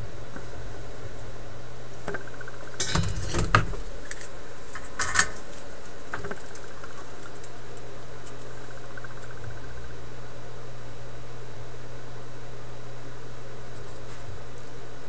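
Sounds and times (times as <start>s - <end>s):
steady low hum: 0.0s - 15.0s
metal hand tools clattering: 2.8s - 3.8s.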